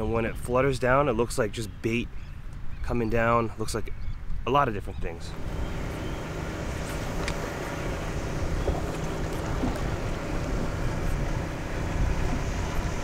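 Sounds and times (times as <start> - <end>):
wind buffeting microphone: 5.0 - 13.0
sea water washing against rocks: 5.4 - 13.0.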